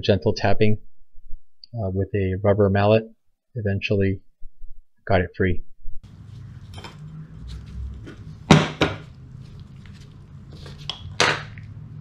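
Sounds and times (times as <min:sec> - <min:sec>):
steady low hum: 0:06.0 - 0:12.0.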